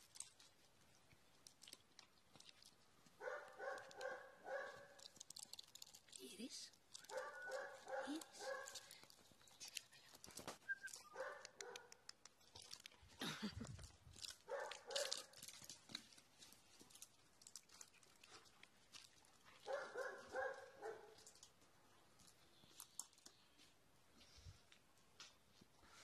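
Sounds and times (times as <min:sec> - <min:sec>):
dog barking: 0:03.2 - 0:05.0, 0:07.1 - 0:08.9, 0:11.1 - 0:12.0, 0:14.5 - 0:15.3, 0:19.6 - 0:21.2.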